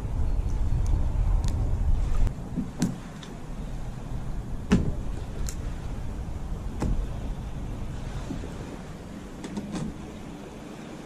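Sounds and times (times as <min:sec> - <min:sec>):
waves lapping against kayak hull: 0:00.0 - 0:11.0
wind rumble on microphone: 0:00.0 - 0:11.0
water slaps: 0:00.5 - 0:03.4, 0:04.6 - 0:10.2.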